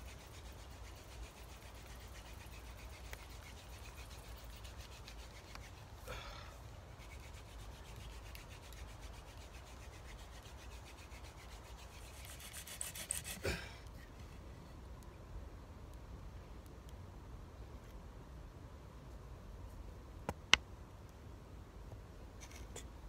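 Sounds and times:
wooden spindle grinding: 0:00.0 - 0:06.2, 0:07.0 - 0:13.5.

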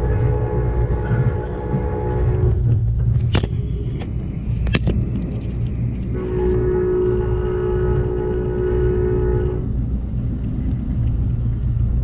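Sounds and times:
locomotive horn chord: 0:00.0 - 0:02.7, 0:06.1 - 0:09.7
train rumble inside car: 0:00.0 - 0:12.0.

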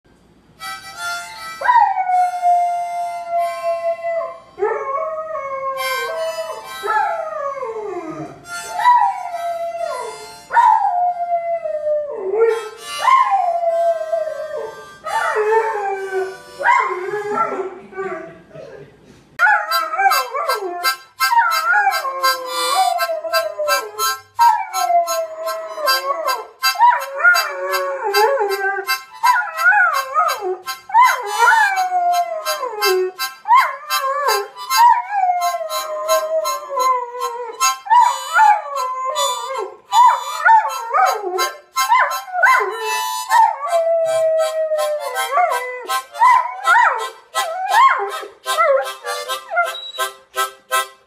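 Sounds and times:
harmonica chords: 0:00.4 - 0:18.1, 0:19.4 - 0:51.0
dog howling: 0:19.4 - 0:50.0.

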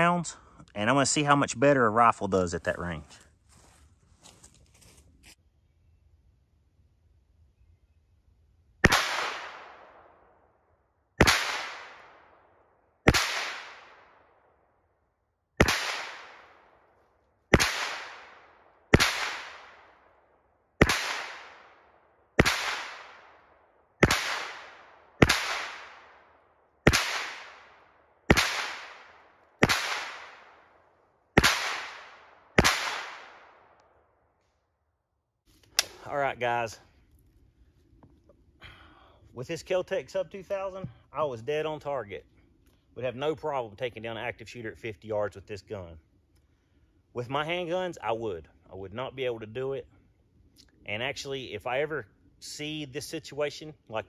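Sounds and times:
gunshots with echo: 0:08.8 - 0:10.2, 0:11.2 - 0:12.4, 0:13.0 - 0:14.2, 0:15.6 - 0:16.7, 0:17.5 - 0:20.0, 0:20.8 - 0:21.8, 0:22.4 - 0:23.4, 0:24.0 - 0:26.2, 0:26.8 - 0:30.7, 0:31.4 - 0:33.6.

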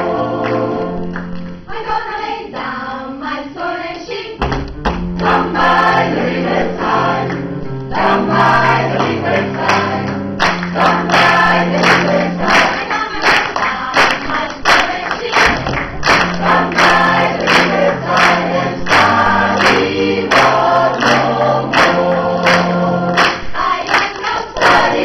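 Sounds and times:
choir singing lively song: 0:00.0 - 0:04.4, 0:05.0 - 0:25.0
hand claps keeping beat: 0:08.7 - 0:25.0.

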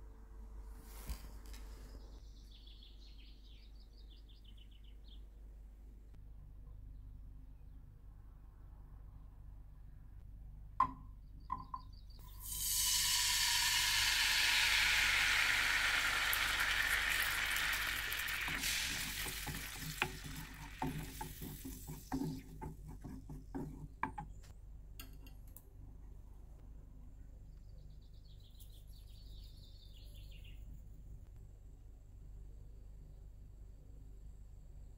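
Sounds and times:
oil sizzling in a frying pan: 0:12.3 - 0:22.5
wooden spoon scraping a pan: 0:18.3 - 0:24.3.

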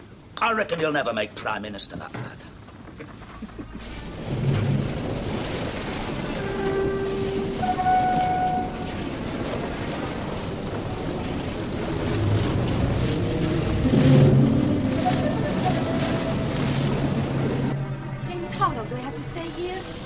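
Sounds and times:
wind: 0:00.0 - 0:20.0
waves washing against hull: 0:02.6 - 0:17.8.

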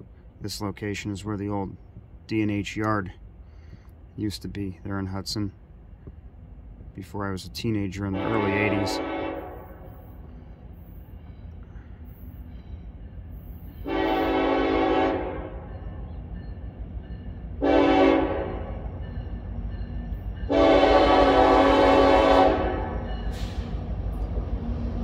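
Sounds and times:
locomotive air horn blasts: 0:08.1 - 0:10.0, 0:13.8 - 0:15.7, 0:17.6 - 0:18.8, 0:20.5 - 0:23.5.

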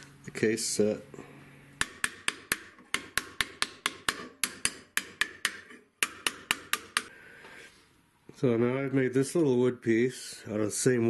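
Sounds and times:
hammer tapping on copper tube: 0:01.8 - 0:07.1.

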